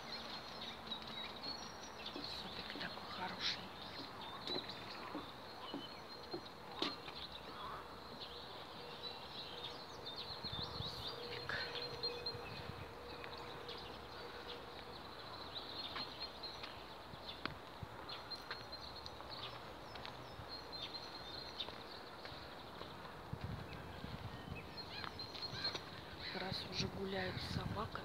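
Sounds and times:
birds chirping: 0.0s - 28.0s
footsteps on wooden boards: 0.2s - 8.3s.

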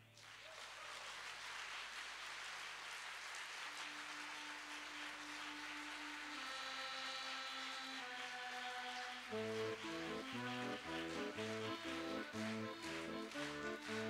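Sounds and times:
audience applauding: 0.0s - 14.0s
held accordion note: 3.9s - 14.0s.

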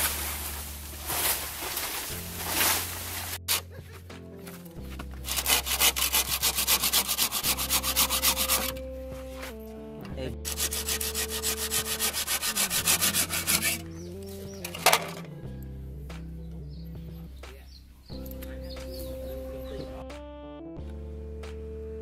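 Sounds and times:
hand saw cutting bamboo: 0.0s - 3.7s, 5.2s - 8.8s, 10.4s - 13.8s
soft background music: 0.0s - 22.0s.

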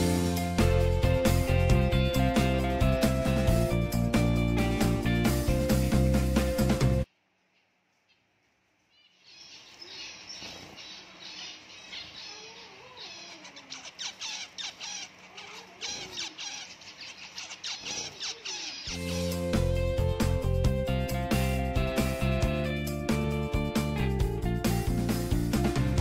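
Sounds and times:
finches calling: 9.0s - 19.4s.

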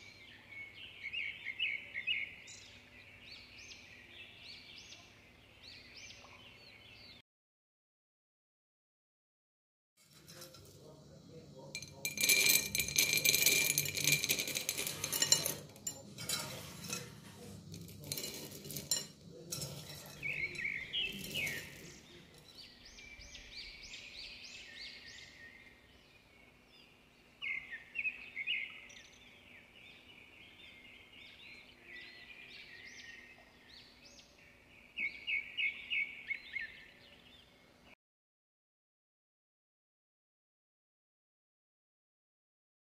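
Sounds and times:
birds chirping: 0.0s - 7.2s, 10.2s - 37.7s
metal spoon scraping a bowl: 10.0s - 22.8s.

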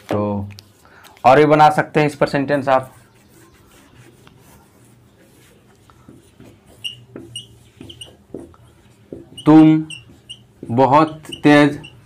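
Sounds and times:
marker squeaking on whiteboard: 2.2s - 12.0s
whiteboard being wiped: 2.5s - 12.0s.

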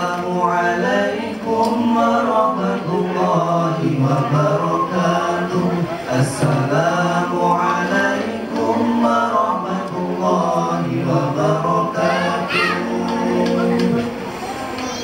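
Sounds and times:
melodic chanting of verse: 0.0s - 14.7s.

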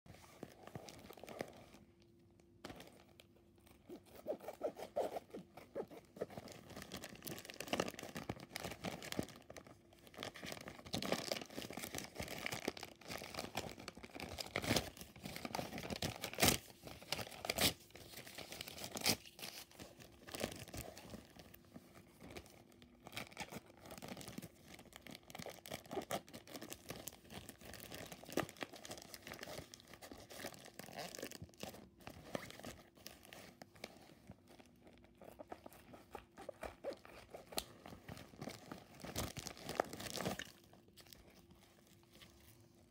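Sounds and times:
plastic bag crinkling: 22.7s - 42.8s.

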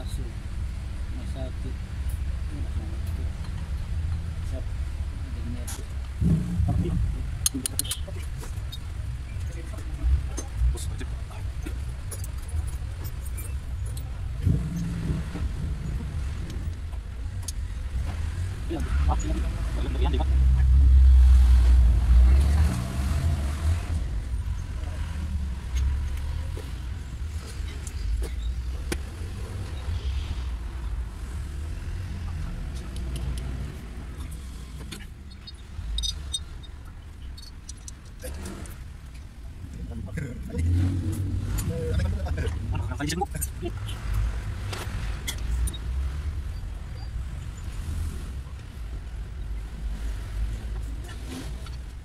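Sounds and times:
steady low rumble: 2.4s - 12.1s
metallic clicks and taps of tools: 7.4s - 8.8s, 32.7s - 33.6s, 34.2s - 39.3s
metal clinks and taps of tools: 34.9s - 38.2s.

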